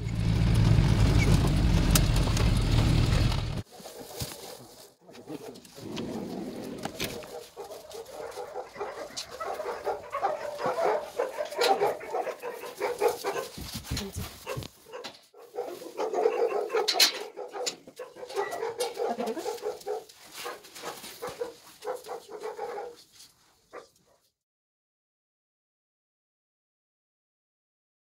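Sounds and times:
rustling: 2.9s - 24.1s
dogs barking: 3.3s - 23.1s, 23.7s - 24.3s.

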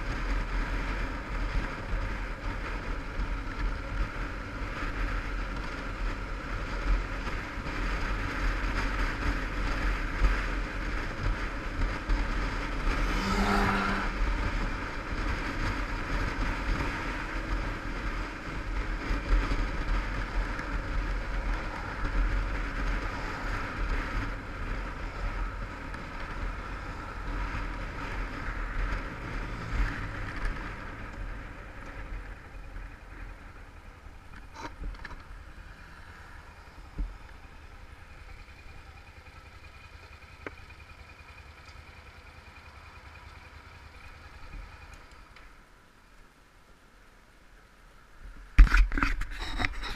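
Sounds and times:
wind rumble on microphone: 0.0s - 38.0s
motorcycle engine running: 0.0s - 46.2s.

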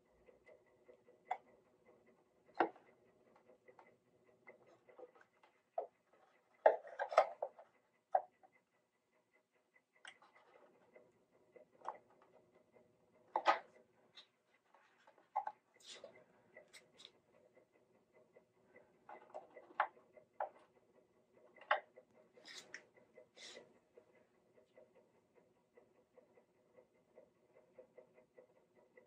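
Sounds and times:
hand tools clicking on wood: 0.0s - 17.6s.

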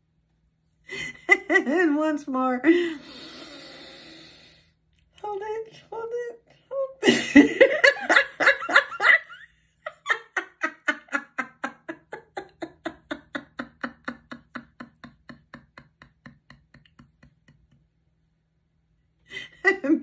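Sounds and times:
woman laughing heartily: 0.9s - 1.8s, 7.0s - 18.0s, 19.3s - 20.0s.

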